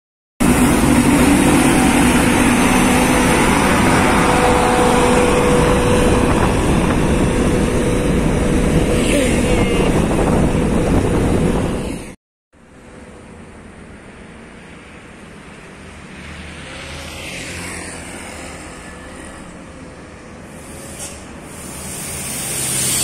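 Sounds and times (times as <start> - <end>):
heavy truck diesel engine running: 0.4 - 8.9
road noise: 0.4 - 23.0.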